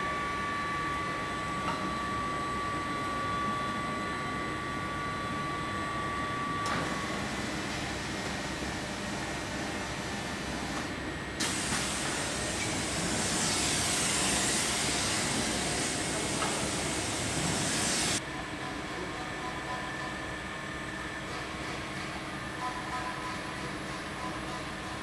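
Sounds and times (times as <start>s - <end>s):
steady machine hum: 0.0s - 25.0s
loud air hiss: 11.4s - 18.2s.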